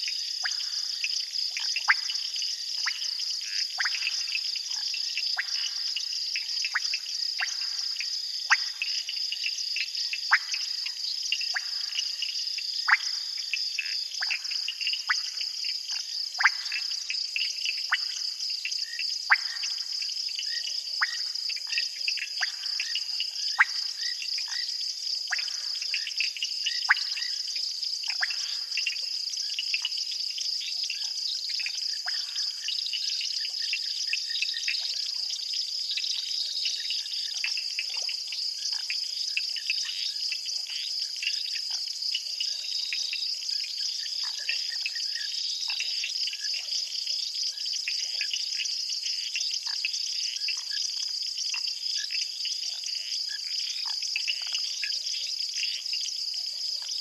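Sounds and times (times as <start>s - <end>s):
frogs chirping and clicking: 0.0s - 57.0s.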